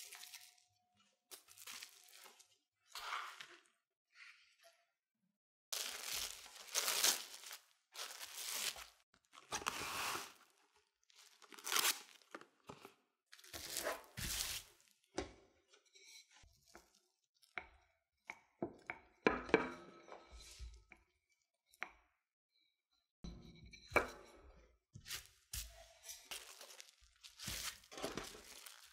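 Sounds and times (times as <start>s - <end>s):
cling film crinkling: 5.7s - 9.0s, 26.3s - 28.9s.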